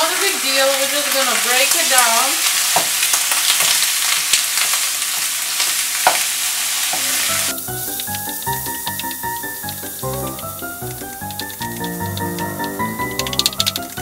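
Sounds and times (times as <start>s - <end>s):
meat sizzling in oil: 0.0s - 14.0s
background music: 7.0s - 14.0s.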